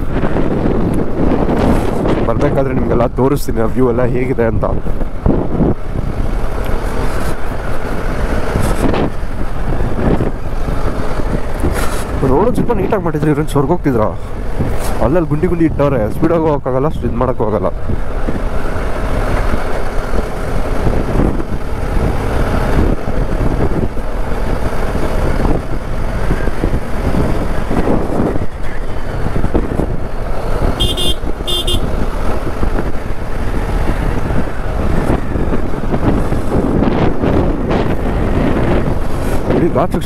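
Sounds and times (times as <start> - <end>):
road and wind noise: 0.0 - 40.0
motorcycle engine running: 18.0 - 36.6
horn beeps: 30.8 - 31.9.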